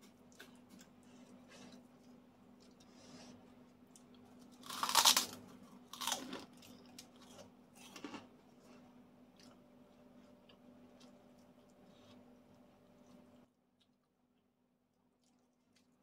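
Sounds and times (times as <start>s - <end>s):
crackers crunching when chewed: 3.6s - 14.1s, 15.1s - 16.0s.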